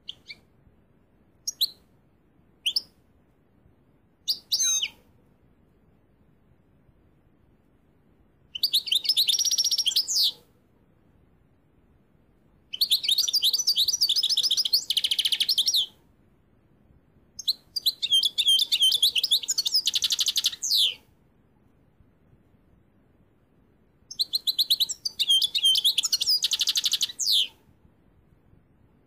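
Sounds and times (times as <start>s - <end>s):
finch twittering song: 0.0s - 0.4s, 1.5s - 1.8s, 2.6s - 2.9s, 4.2s - 5.0s, 8.5s - 10.4s, 12.7s - 15.9s, 17.4s - 21.0s, 24.1s - 27.6s.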